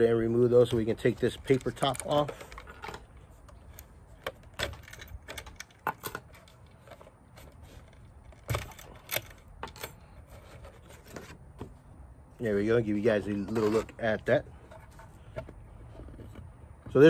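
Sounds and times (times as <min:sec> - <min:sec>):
wooden pins clicking and knocking: 0:01.1 - 0:07.4.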